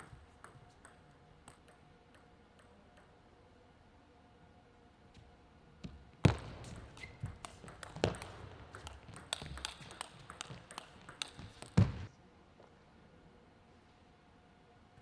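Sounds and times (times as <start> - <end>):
table tennis ball clicking: 0.0 - 3.2, 6.6 - 11.9
shoe squeak: 6.7 - 7.6.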